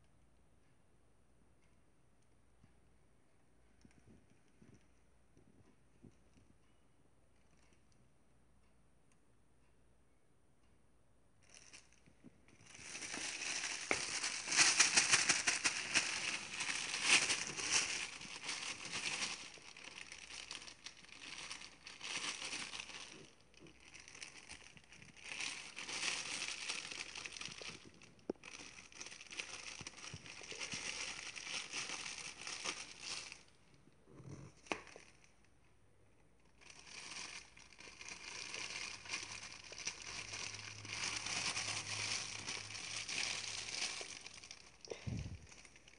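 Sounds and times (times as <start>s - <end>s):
plastic bag crinkling: 11.4s - 35.6s, 36.4s - 45.9s.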